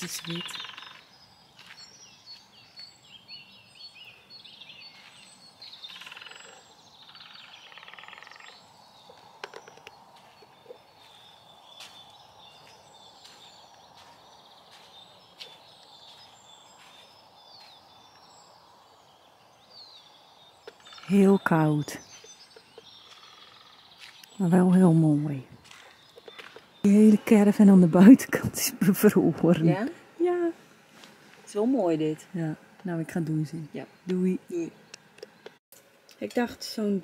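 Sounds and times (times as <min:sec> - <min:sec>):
rapid trilling bird call: 0:00.0 - 0:01.3, 0:04.6 - 0:17.7
birds chirping and singing: 0:00.0 - 0:30.0.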